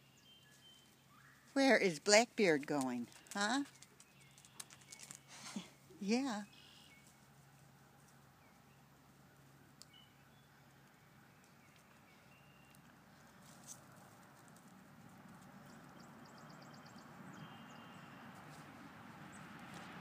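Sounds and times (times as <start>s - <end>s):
faint clicks: 3.0s - 5.2s.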